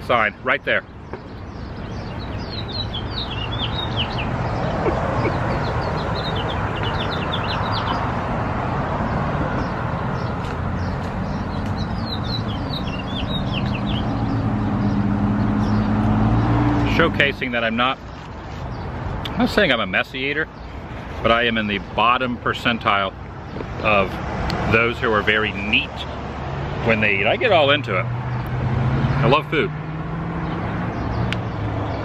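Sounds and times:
songbird singing: 0:00.0 - 0:32.0
traffic noise: 0:00.0 - 0:32.0
vehicle engine hum: 0:00.9 - 0:32.0.

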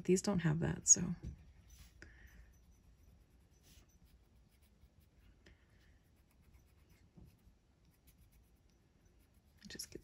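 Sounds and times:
colored pencil scratching on paper: 0:02.6 - 0:10.0.

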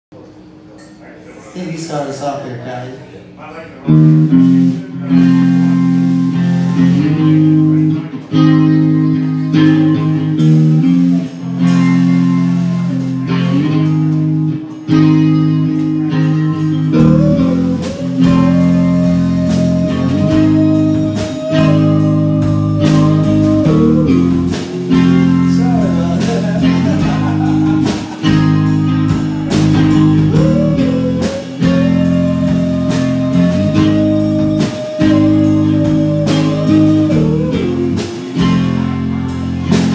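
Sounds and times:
bass guitar: 0:03.8 - 0:39.9
electric guitar: 0:03.8 - 0:39.9
drums: 0:03.9 - 0:39.9
singing voice: 0:16.0 - 0:39.0.

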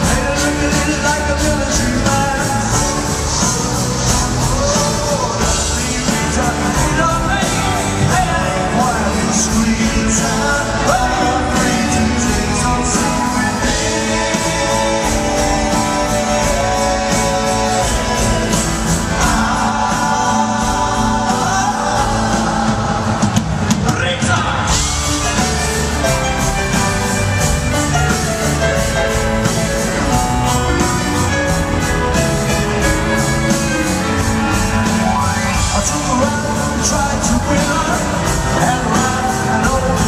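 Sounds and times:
harmony vocals: 0:00.0 - 0:26.4
man singing lead vocals: 0:00.0 - 0:26.8, 0:28.0 - 0:40.0
bass guitar: 0:00.0 - 0:40.0.

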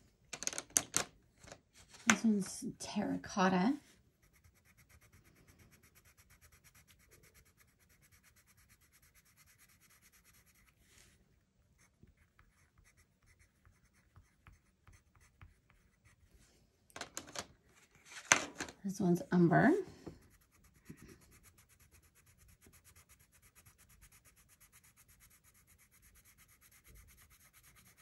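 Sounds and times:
colored pencil scribbling on paper: 0:04.1 - 0:11.0, 0:11.8 - 0:16.3, 0:20.0 - 0:28.0.

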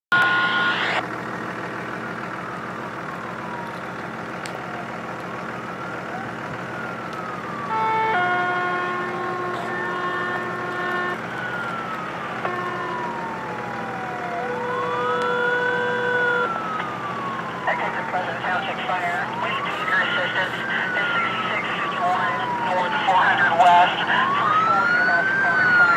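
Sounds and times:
multi-tone air horn blasts: 0:00.1 - 0:00.9, 0:07.7 - 0:11.2, 0:12.4 - 0:13.0
fire truck sirens wailing: 0:00.1 - 0:25.9
low rumble of trucks: 0:00.1 - 0:25.9.

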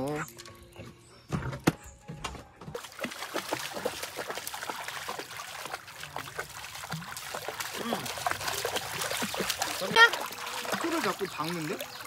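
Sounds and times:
dog splashing through water: 0:02.8 - 0:12.0
shallow stream trickling: 0:02.8 - 0:12.0.

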